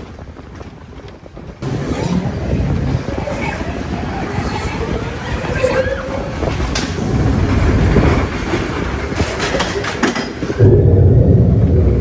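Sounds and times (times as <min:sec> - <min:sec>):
ride vehicle clattering on track: 0:00.0 - 0:10.8
heavy low rumble: 0:10.5 - 0:12.0.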